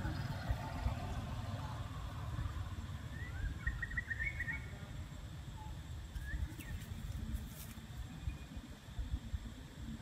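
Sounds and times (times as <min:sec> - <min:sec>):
wind rumble on microphone: 0:06.0 - 0:10.0.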